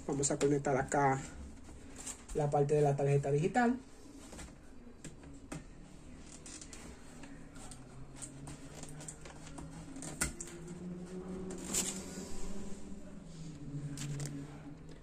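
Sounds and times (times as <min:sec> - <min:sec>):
faint low hum: 0:00.0 - 0:15.0
cloth rustling: 0:06.4 - 0:13.2.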